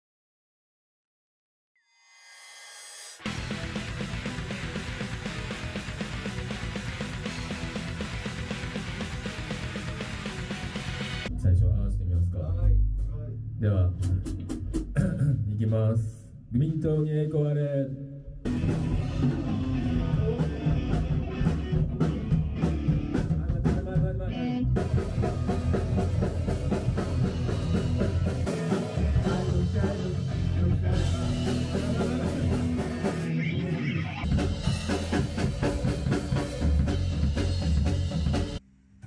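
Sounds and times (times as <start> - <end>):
electric guitar: 3.2 - 11.3, 18.5 - 38.6
drum kit: 3.2 - 15.9, 18.4 - 38.6
bass guitar: 3.2 - 16.0, 18.4 - 38.6.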